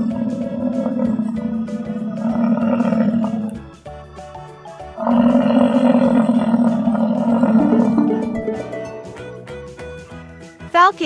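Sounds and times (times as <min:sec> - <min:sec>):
bison bellowing: 0:00.0 - 0:04.1, 0:04.7 - 0:09.4
light background music: 0:00.0 - 0:11.0.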